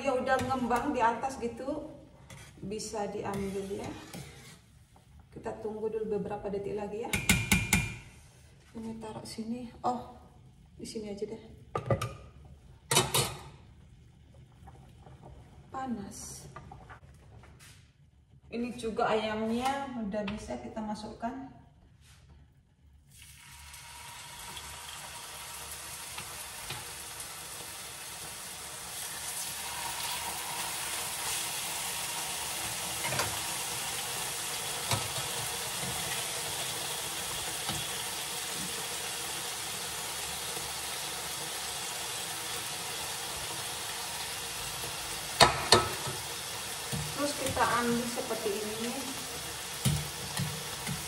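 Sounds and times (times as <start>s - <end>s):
meat sizzling in a pan: 23.2s - 51.0s.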